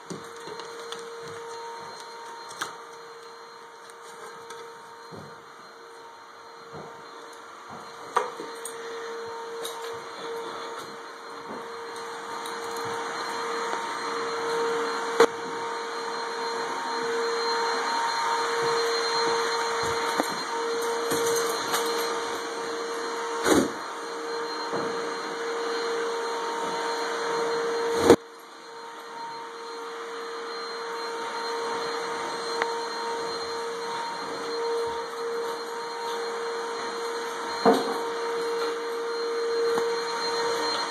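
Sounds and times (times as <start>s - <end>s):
vacuum cleaner running: 0.0s - 40.9s.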